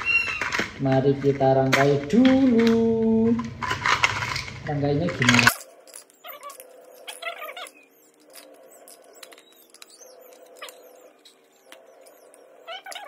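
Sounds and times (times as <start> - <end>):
kittens mewing: 5.4 - 13.0.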